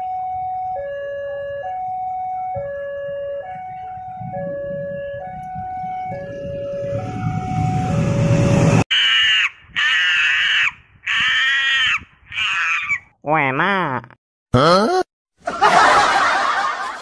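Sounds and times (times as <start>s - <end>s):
level crossing two-tone alarm: 0.0s - 8.6s
approaching train rumble: 4.2s - 8.8s
loud high-pitched calls: 8.9s - 13.0s.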